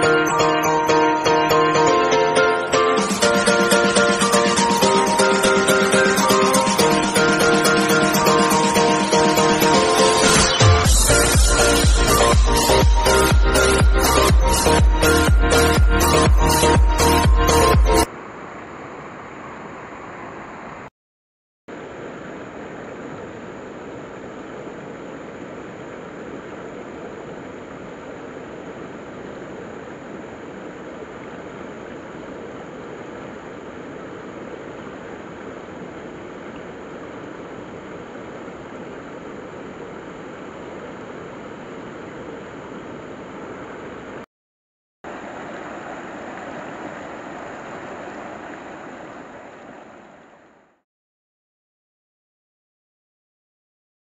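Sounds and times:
stream running over rocks: 21.7 - 44.2, 45.1 - 50.8
stream rushing over stones: 45.1 - 50.6.

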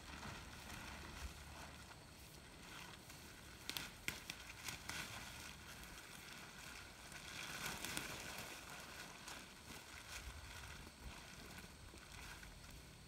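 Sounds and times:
plastic tarp crinkling and rustling: 0.0 - 13.0.

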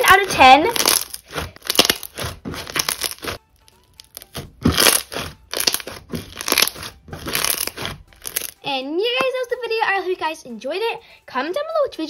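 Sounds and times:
slime crunching and crackling: 0.0 - 8.6.

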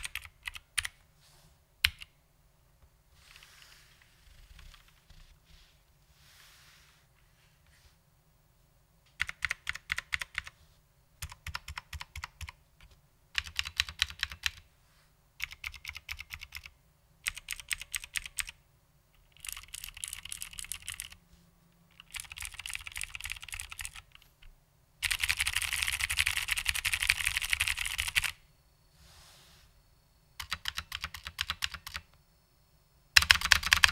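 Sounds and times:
mechanical keyboard typing: 0.0 - 1.0, 9.1 - 10.6, 11.2 - 14.6, 15.4 - 18.6, 19.2 - 21.2, 21.9 - 24.2, 25.0 - 28.4, 30.4 - 32.1, 33.2 - 33.9.

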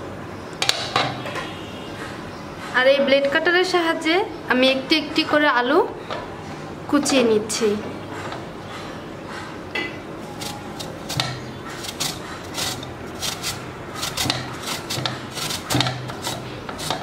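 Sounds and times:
potato rasping on grater: 10.3 - 17.0.

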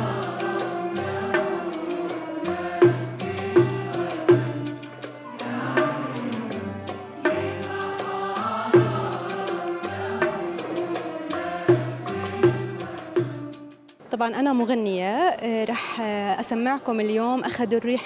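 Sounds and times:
low drum notes: 0.0 - 13.7
choir singing: 0.0 - 13.9
traditional instrumental ensemble: 0.0 - 14.1.

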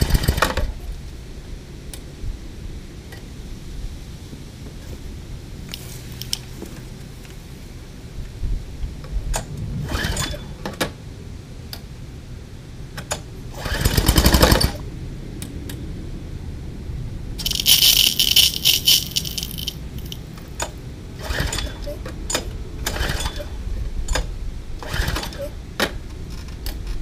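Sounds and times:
recoil starter rattling pull: 17.4 - 20.2.

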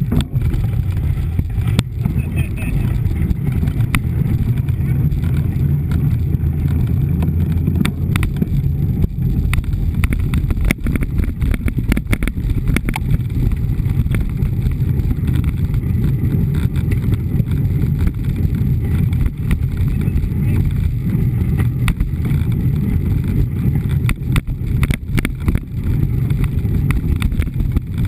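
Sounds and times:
bike clicks and rattles: 0.0 - 28.0
bike tyres on gravel: 0.0 - 28.0
wind rumble on microphone: 0.0 - 28.0.

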